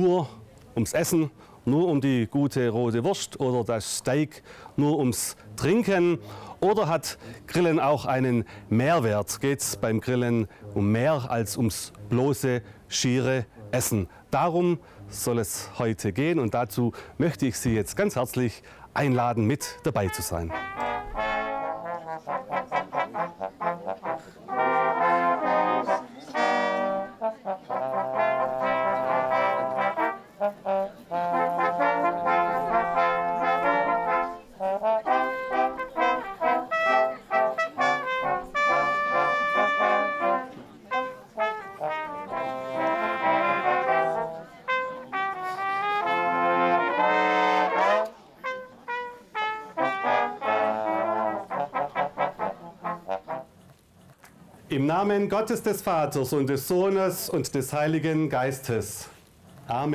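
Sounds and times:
brass ensemble playing: 19.0s - 53.7s.

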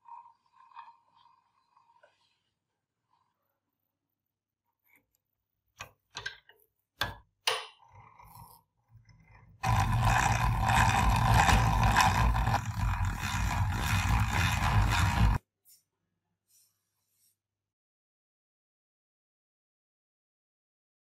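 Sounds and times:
hand drill boring into wood: 9.6s - 15.4s.

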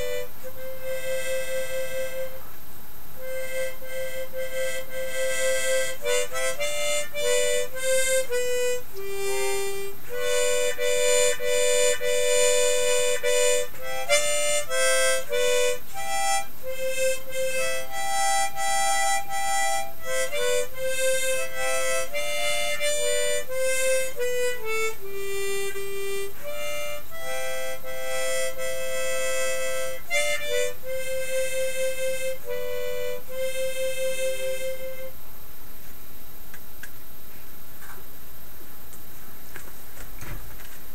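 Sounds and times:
harmonica playing a tune: 0.0s - 2.5s, 3.2s - 35.1s.

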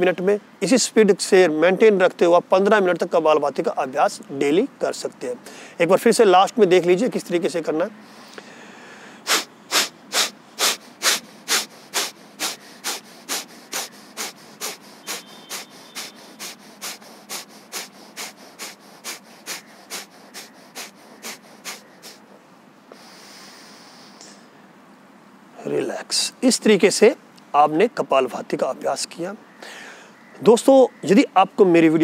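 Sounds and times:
long slow breath: 8.0s - 24.5s, 29.6s - 30.2s
man exhaling forcefully through nose: 8.1s - 24.5s.

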